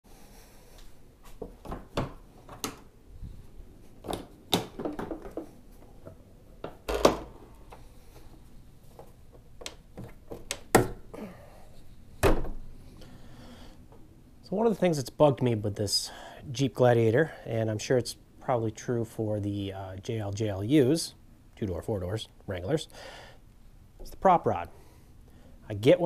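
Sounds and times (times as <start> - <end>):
objects knocking and clunking: 1.4 - 2.9, 4.0 - 7.9.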